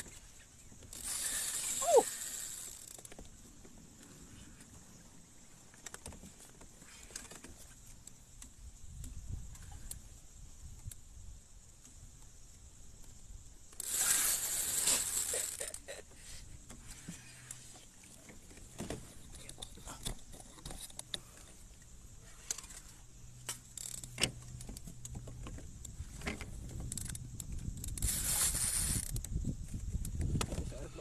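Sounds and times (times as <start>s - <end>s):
fishing reel clicking and rattling: 0.8s - 3.2s, 13.7s - 15.9s, 23.5s - 24.4s, 26.2s - 29.4s.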